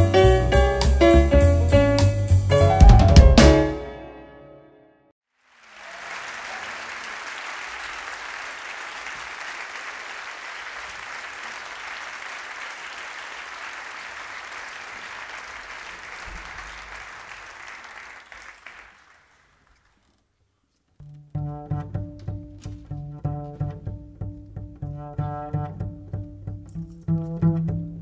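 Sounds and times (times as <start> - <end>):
audience applauding: 5.4 - 20.0.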